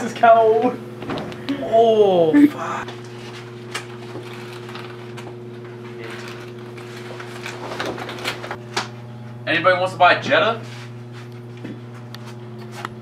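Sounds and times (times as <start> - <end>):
steady low hum: 0.0 - 13.0
bubble wrap crinkling: 3.0 - 5.2.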